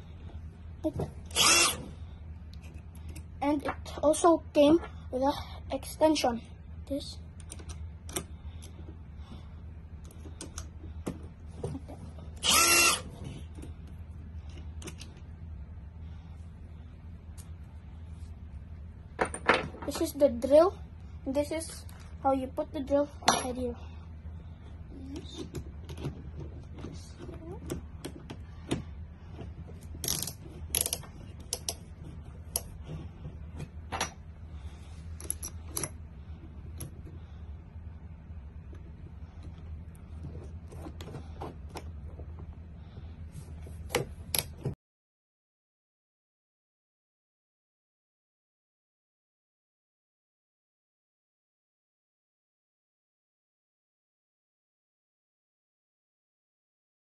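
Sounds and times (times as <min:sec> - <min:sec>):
steady low hum: 0:00.0 - 0:44.8
drill motor whine: 0:01.3 - 0:01.9, 0:12.4 - 0:13.1.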